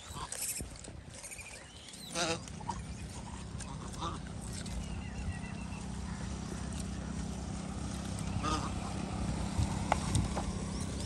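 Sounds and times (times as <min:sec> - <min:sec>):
vehicle engine idling: 0:02.2 - 0:11.0.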